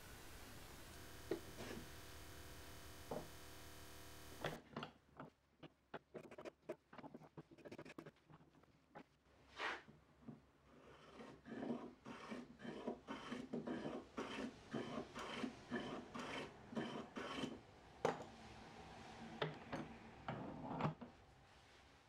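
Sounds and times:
block plane rasping on wood: 1.0 - 4.6, 10.8 - 17.6.

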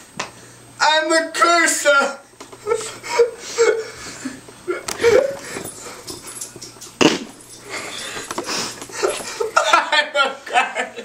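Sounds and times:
man laughing wheezily: 2.6 - 6.0, 7.0 - 11.0.

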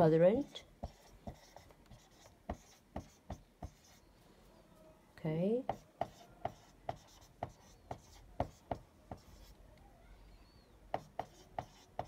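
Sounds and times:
marker pen tapping on whiteboard: 0.8 - 4.0, 5.7 - 9.5, 10.9 - 12.0.

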